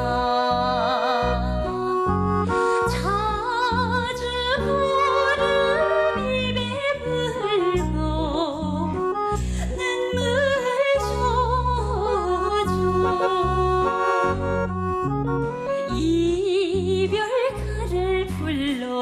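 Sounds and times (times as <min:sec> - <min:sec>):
electric bass line: 0:00.0 - 0:09.4, 0:11.0 - 0:16.4
woman singing with vibrato: 0:00.0 - 0:14.6, 0:15.9 - 0:19.0
accordion chords: 0:00.0 - 0:18.8.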